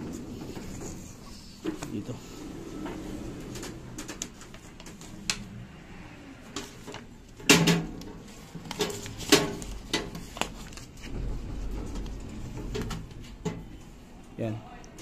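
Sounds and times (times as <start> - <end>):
low rumbling handling noise: 0.0 - 14.2
paper rustling: 8.2 - 11.2.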